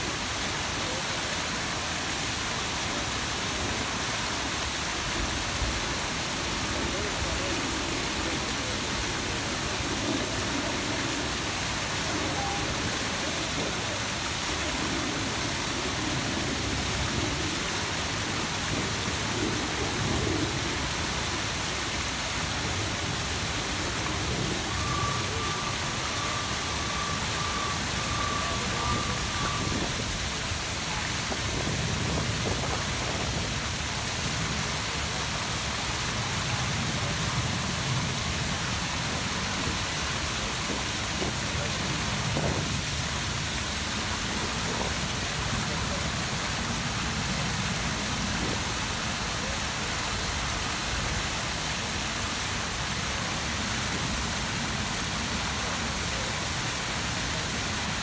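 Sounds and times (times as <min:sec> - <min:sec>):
fountain water splashing: 0:00.0 - 0:58.0.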